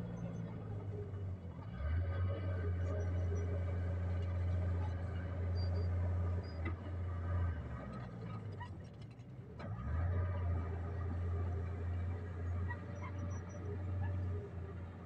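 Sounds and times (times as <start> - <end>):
diesel truck engine hum: 0.0 - 15.0.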